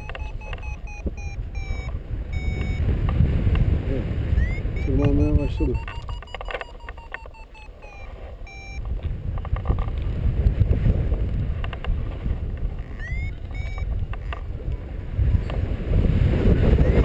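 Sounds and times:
variometer high beeps: 0.0 - 2.9, 4.3 - 8.9, 12.8 - 14.4
wind buffeting microphone: 0.0 - 7.0, 7.7 - 17.0.

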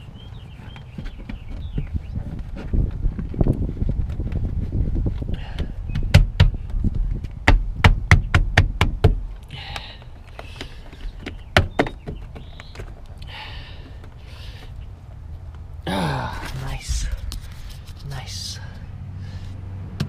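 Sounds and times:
sharp taps and knocks on sheet metal: 7.4 - 9.3.

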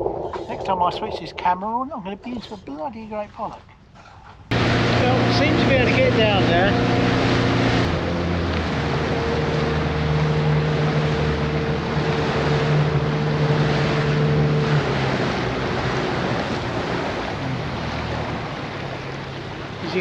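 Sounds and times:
boat engine running: 0.0 - 2.4, 4.4 - 20.0
wind on microphone: 0.0 - 2.7
water rushing: 0.0 - 2.8, 4.5 - 20.0.

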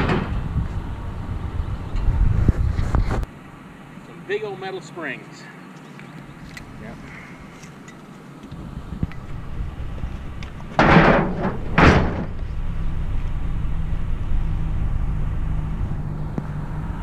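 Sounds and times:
vehicle engine running: 8.6 - 10.8, 11.5 - 17.0
sheet metal crashing: 10.8 - 12.4.

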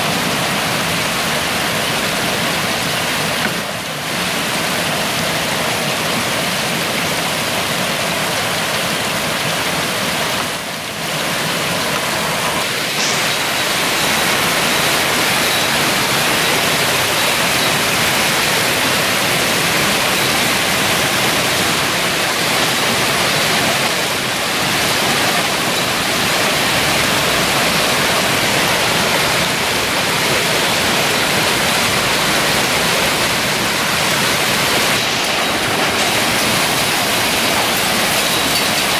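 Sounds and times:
hail and rain falling hard: 0.0 - 38.9.

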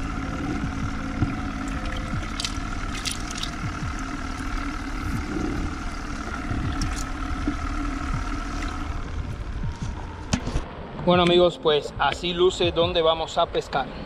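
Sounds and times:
water bubbling and gurgling: 0.0 - 9.7
small aerator motor hum: 0.0 - 10.3
water splashes: 0.8 - 9.1.

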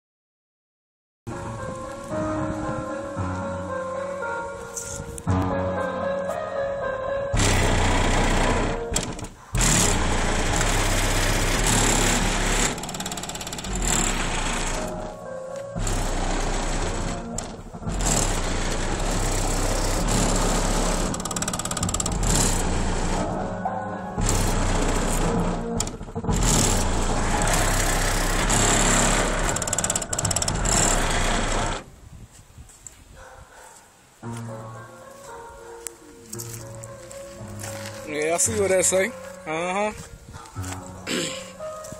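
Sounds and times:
distorted heavy bass music: 7.3 - 31.8.

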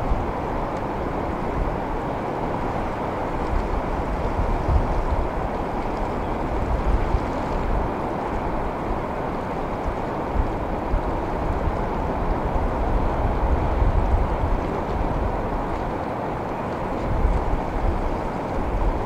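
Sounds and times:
ocean surf: 0.0 - 19.0
wind rumbling on microphone: 0.0 - 19.0.

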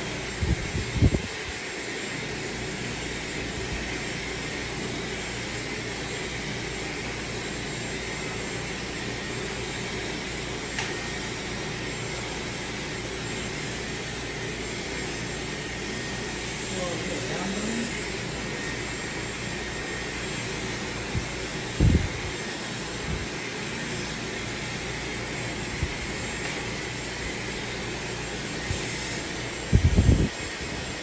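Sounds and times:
hair dryer blowing: 0.0 - 31.0.

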